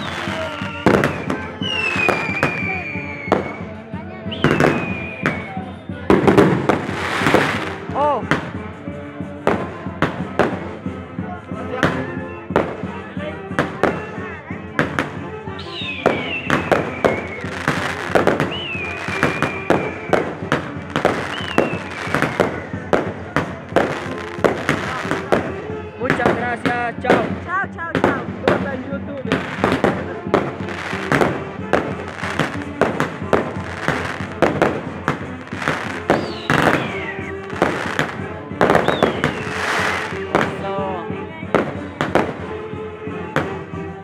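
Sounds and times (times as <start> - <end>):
descending firework whistle: 0.0 - 7.7, 15.5 - 23.2, 35.5 - 40.6
fireworks bangs and crackles: 0.0 - 44.0.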